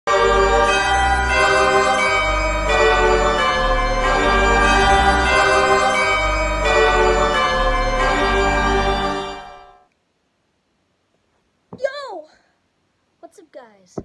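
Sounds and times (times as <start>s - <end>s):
organ chords over bass: 0.1s - 9.8s.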